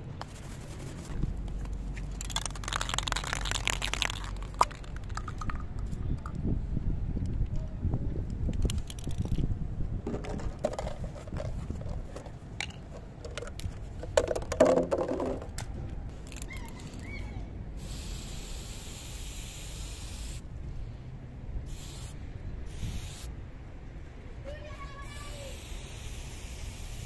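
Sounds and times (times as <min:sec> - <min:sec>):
spray can clicks and rattles: 0:02.0 - 0:06.4, 0:08.5 - 0:09.4, 0:10.3 - 0:15.4, 0:16.2 - 0:16.6, 0:25.4 - 0:27.0
spray can hissing: 0:02.2 - 0:05.4, 0:17.8 - 0:20.4, 0:21.7 - 0:23.3, 0:25.1 - 0:27.0.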